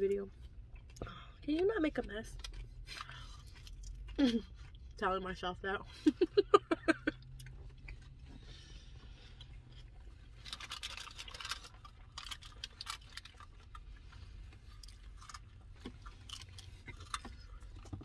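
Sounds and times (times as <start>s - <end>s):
low steady hum: 0.0s - 18.0s
faint chewing: 7.1s - 18.0s
foil wrapper crinkling: 10.4s - 13.8s.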